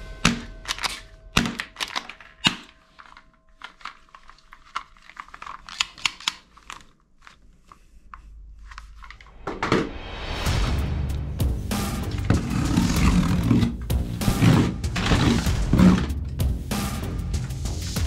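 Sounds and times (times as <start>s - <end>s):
plastic toy guns clattering: 0.2s - 7.3s.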